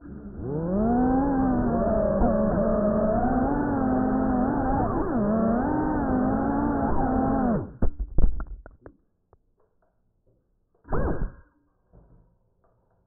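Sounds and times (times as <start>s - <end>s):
drone motors whining: 0.0s - 7.8s, 10.9s - 11.5s.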